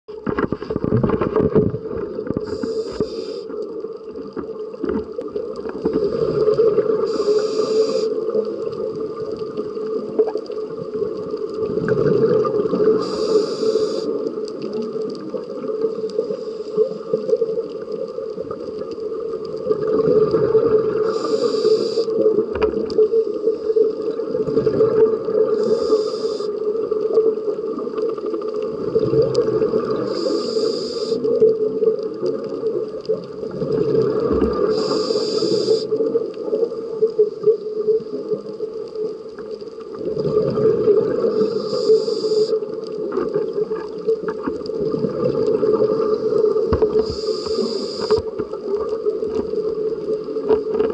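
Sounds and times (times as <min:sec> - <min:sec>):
regulator inhale hisses: 0:02.3 - 0:03.7, 0:05.9 - 0:08.5, 0:12.8 - 0:14.4, 0:16.0 - 0:17.4, 0:21.0 - 0:22.3, 0:23.3 - 0:24.2, 0:25.4 - 0:26.8, 0:29.9 - 0:31.4, 0:34.5 - 0:36.1, 0:41.2 - 0:42.8, 0:45.9 - 0:48.4
low bubbling rumble: 0:10.8 - 0:13.0.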